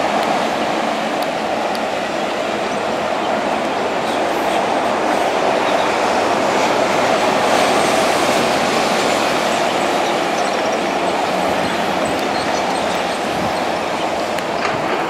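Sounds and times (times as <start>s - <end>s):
train wheels rushing on rails: 0.0s - 15.0s.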